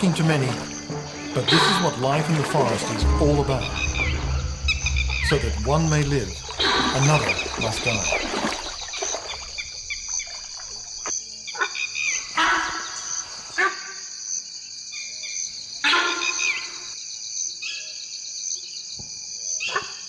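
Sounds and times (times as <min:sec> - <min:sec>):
insects chirring: 0:00.0 - 0:20.0
short insect chirps: 0:03.5 - 0:12.4.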